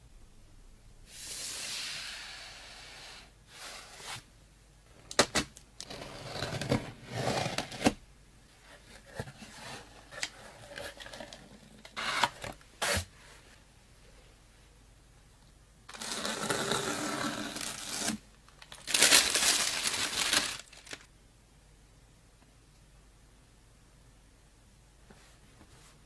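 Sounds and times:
soft hiss: 0.0 - 5.1
cardboard and paper rustling: 17.6 - 21.1.

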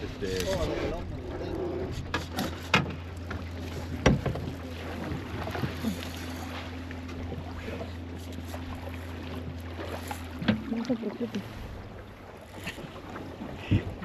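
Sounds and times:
boat motor humming: 0.0 - 14.0
water against hull: 0.0 - 14.0.

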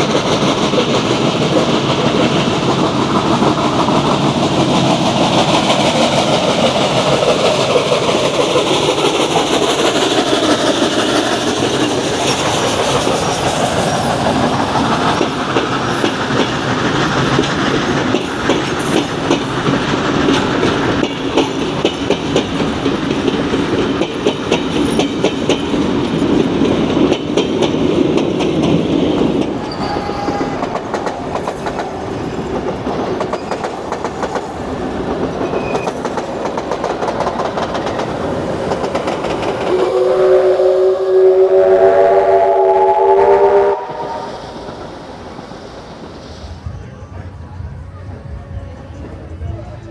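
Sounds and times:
train wheels rattling over rail joints: 0.0 - 40.9.

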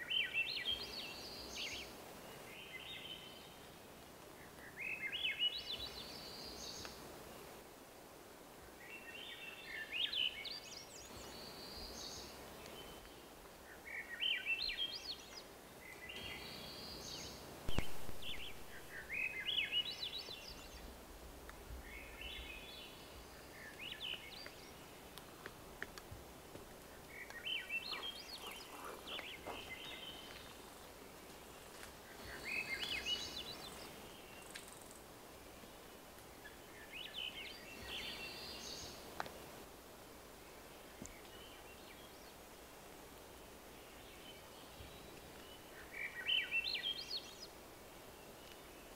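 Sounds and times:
sharp knock: 17.7 - 18.5.

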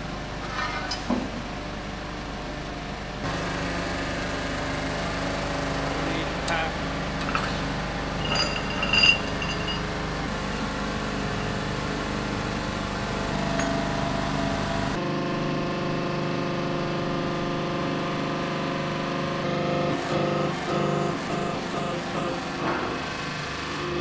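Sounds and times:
metal clink on steel plate: 8.2 - 9.9.

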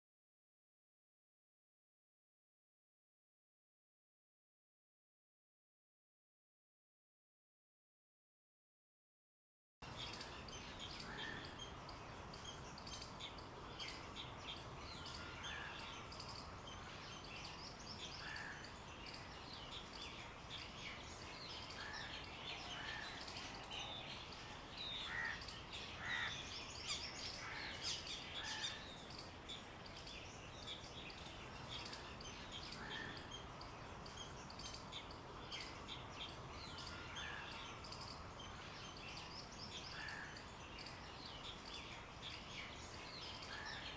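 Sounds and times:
faint steady hiss: 9.8 - 43.9
small birds chirping: 9.8 - 43.9.

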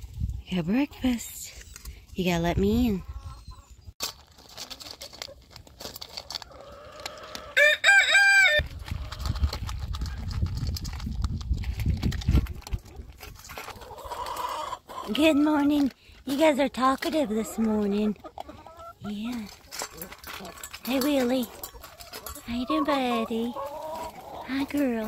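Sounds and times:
rooster crowing: 7.6 - 8.6.

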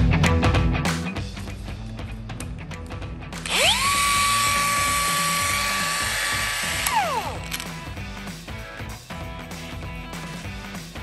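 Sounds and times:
angle grinder motor whining: 3.4 - 7.8.

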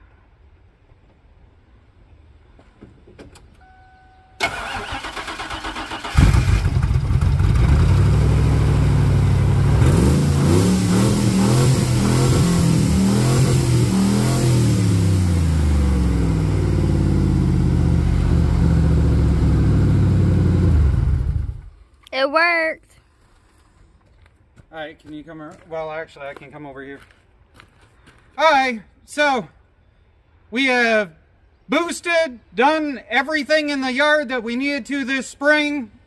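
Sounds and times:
starter cranking engine: 4.4 - 7.8
car engine revving: 5.8 - 21.7.

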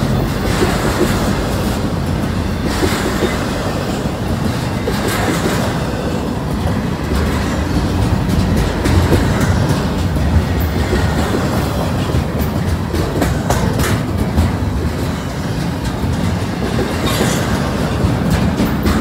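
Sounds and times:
freight train wheels rumbling: 0.0 - 19.0
train wheels clicking and clacking: 0.0 - 19.0.

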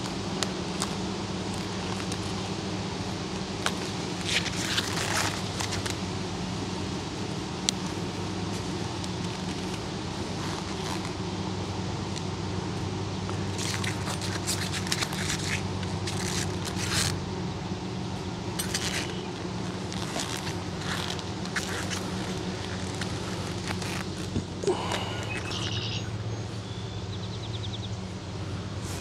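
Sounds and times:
bees humming: 15.6 - 29.0.

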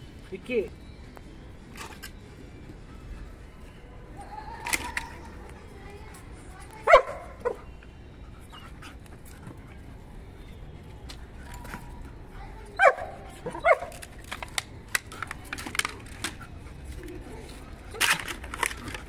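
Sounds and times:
small clicks and scuffs: 4.5 - 7.5, 8.4 - 19.0
dog barking: 6.8 - 7.7, 12.8 - 14.0.

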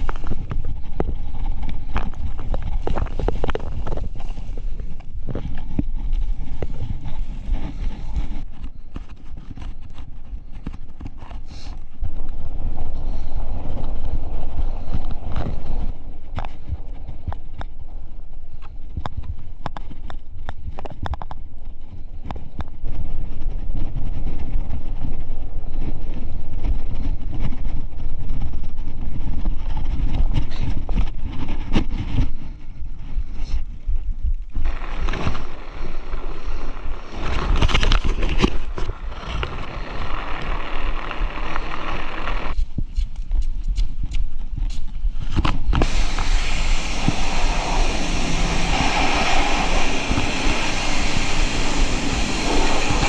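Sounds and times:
bike tyres rumbling on snow: 0.0 - 53.0
loud rushing hiss: 45.8 - 53.0.

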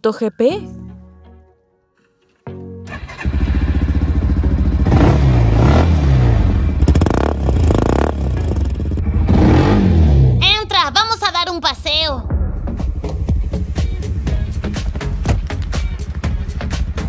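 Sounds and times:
small petrol engine revving: 2.9 - 10.4.

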